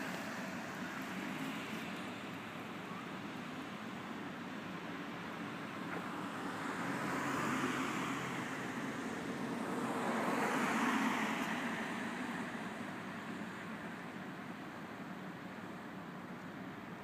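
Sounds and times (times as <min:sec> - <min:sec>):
cars passing: 0:06.0 - 0:12.8.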